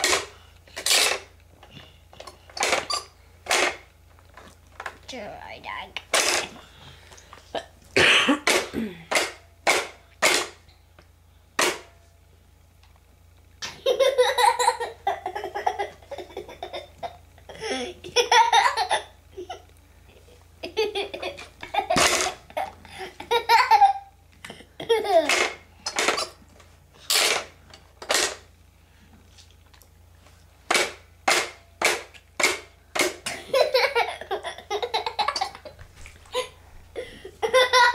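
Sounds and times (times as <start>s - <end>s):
young boy laughing: 13.6s - 25.4s, 33.3s - 37.9s.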